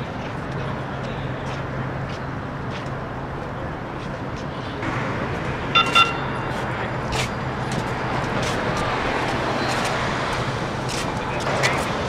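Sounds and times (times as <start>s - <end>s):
light rail train running: 0.0s - 12.0s
street traffic: 0.0s - 12.0s
short high beeps: 5.8s - 6.7s.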